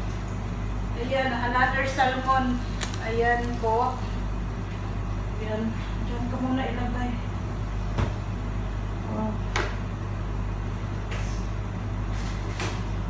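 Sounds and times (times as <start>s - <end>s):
low mechanical hum: 0.0s - 13.0s.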